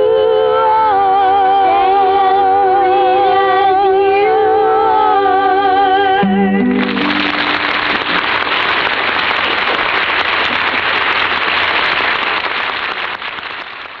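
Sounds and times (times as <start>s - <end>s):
audience applauding: 6.7s - 14.0s.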